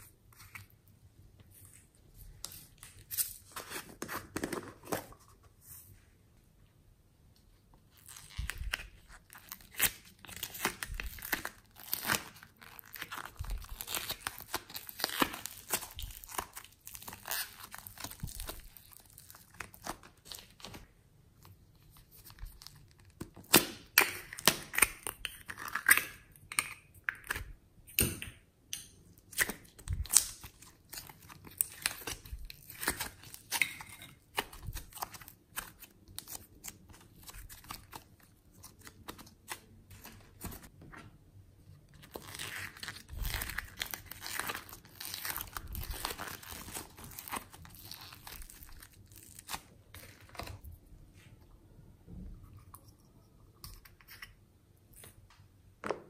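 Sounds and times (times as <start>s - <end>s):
slime crackling and tearing: 8.0s - 20.8s, 41.9s - 50.6s.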